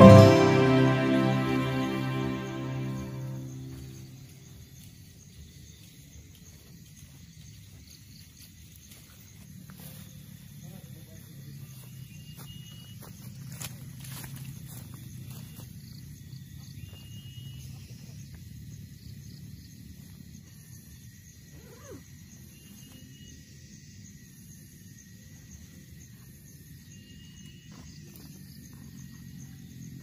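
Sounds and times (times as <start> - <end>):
high whistle notes: 0.0 - 4.0
faint ticks and rustles: 4.2 - 12.0.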